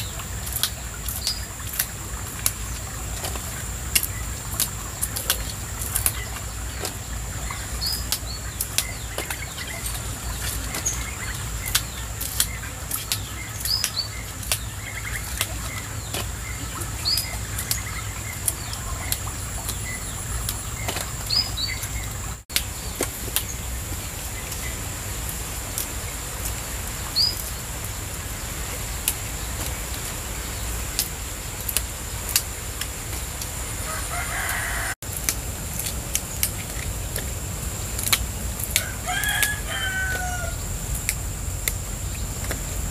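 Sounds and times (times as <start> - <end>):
bird chirps: 5.1 - 23.7
plant stalks snapping: 7.9 - 16.3, 34.4 - 37.4, 38.0 - 42.8.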